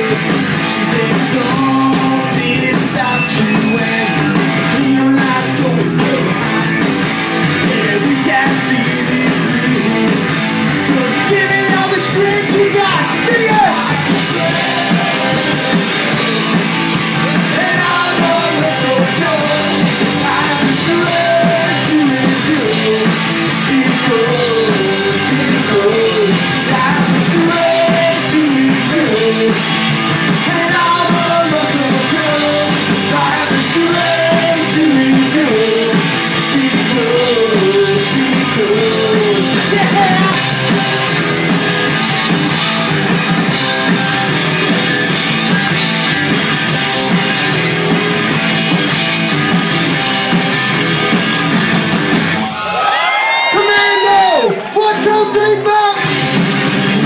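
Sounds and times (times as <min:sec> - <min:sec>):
lead vocal singing: 0:00.0 - 0:06.6, 0:07.6 - 0:41.1
bass guitar: 0:00.0 - 0:57.0
drum kit: 0:00.0 - 0:57.0
electric guitars: 0:00.0 - 0:57.0.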